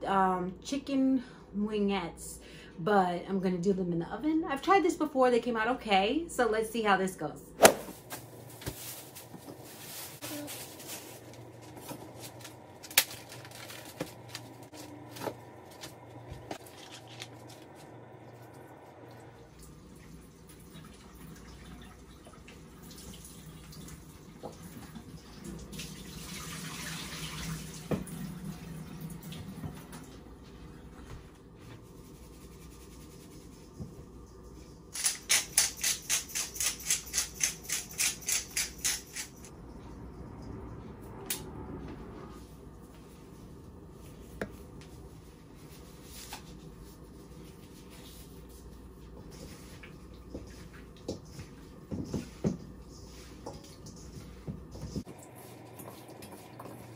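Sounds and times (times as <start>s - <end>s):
tap running: 11.3s - 19.3s.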